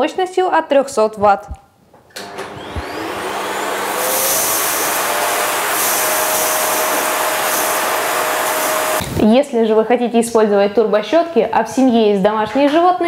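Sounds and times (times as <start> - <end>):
vacuum cleaner running: 2.2 - 9.2.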